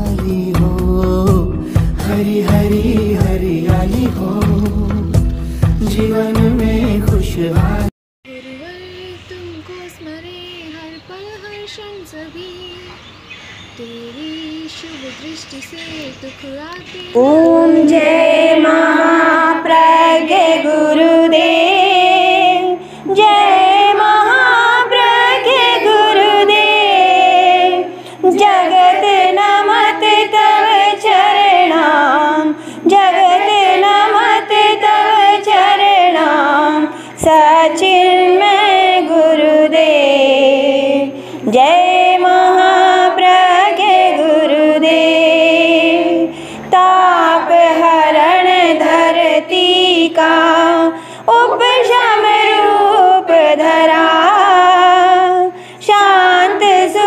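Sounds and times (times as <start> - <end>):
women singing a hymn in unison: 13.8 - 57.0.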